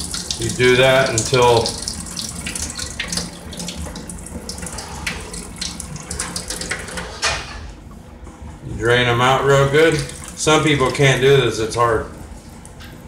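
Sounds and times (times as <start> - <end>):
water pouring into a steel sink: 0.0 - 7.2, 9.7 - 11.3.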